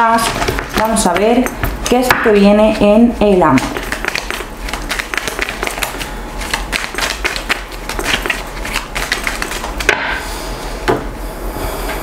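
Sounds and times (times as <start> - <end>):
cards being shuffled: 3.6 - 9.9.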